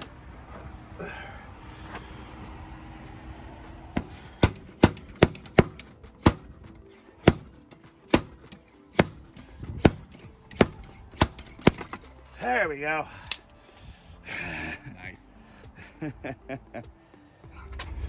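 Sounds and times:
slide hammer metal clanks: 0:04.4 - 0:06.4.

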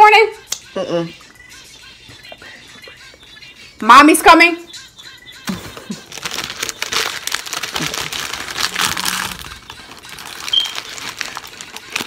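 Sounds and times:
paper wrapper crinkling: 0:05.6 - 0:12.0.

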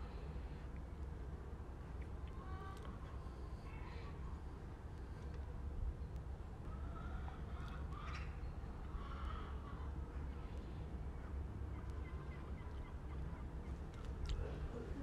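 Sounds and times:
low outdoor rumble: 0:00.0 - 0:15.0
faint bird calls: 0:06.7 - 0:10.4.

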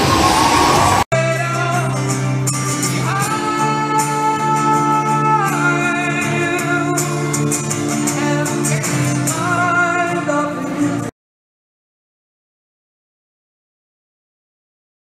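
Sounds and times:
strummed acoustic guitar: 0:01.2 - 0:11.1.

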